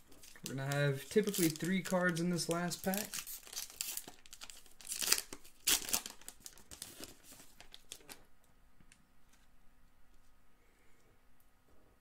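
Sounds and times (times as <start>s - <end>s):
foil wrapper tearing and crinkling: 0.1s - 8.2s.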